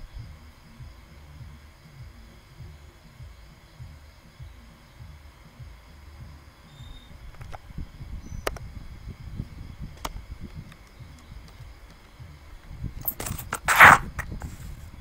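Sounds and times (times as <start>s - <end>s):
sharp clicks: 13.0s - 14.4s
loud rustle: 13.0s - 14.9s.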